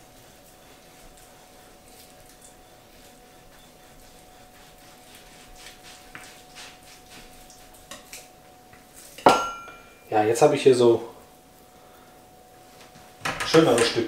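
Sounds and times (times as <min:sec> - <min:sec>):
knife sawing through frozen meat: 0:00.0 - 0:07.8
metallic clank: 0:09.3 - 0:09.9.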